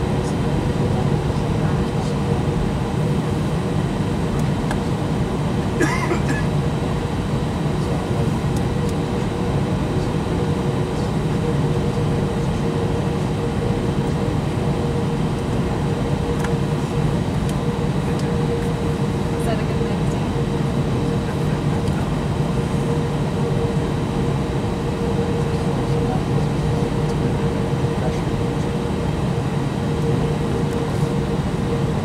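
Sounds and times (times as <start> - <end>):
jet engines humming and whining: 0.0 - 32.0.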